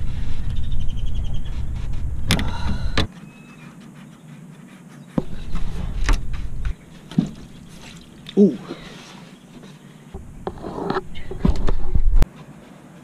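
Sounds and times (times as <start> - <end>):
low rumble: 0.0 - 3.1, 5.2 - 6.8.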